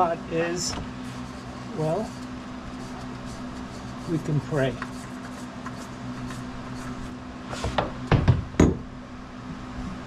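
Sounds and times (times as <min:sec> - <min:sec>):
steady low hum: 0:00.0 - 0:10.0
tools knocking and clunking: 0:07.8 - 0:08.9.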